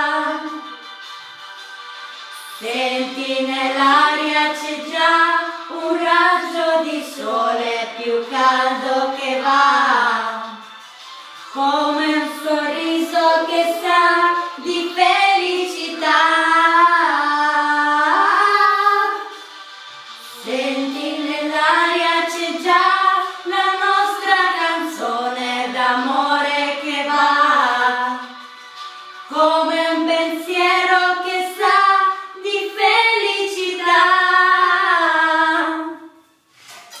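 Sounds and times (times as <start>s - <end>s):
woman singing: 0.0s - 0.7s, 2.6s - 10.6s, 11.6s - 19.3s, 20.3s - 28.3s, 29.3s - 36.1s
boy singing: 11.6s - 19.3s.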